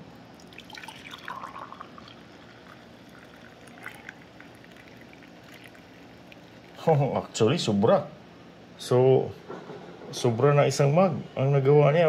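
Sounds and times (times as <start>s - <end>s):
coffee pouring into a mug: 0.4s - 6.8s.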